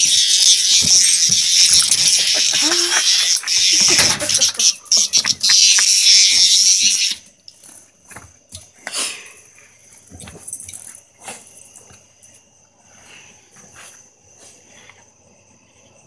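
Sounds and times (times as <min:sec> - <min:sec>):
cicada buzzing harshly: 0:00.0 - 0:07.8.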